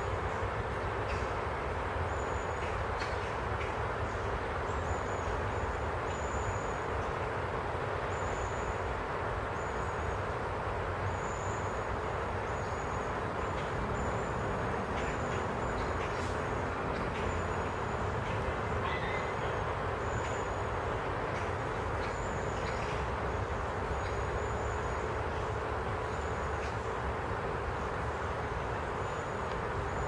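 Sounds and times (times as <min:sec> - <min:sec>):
wind rushing through trees: 0:00.0 - 0:30.0
high thin bird calls: 0:18.7 - 0:20.4.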